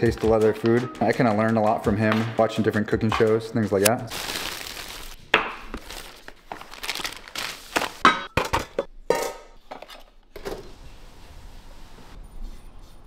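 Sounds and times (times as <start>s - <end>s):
paper bags rustling: 4.0s - 8.8s
items knocking and clinking on counter: 5.3s - 7.0s, 7.7s - 10.6s.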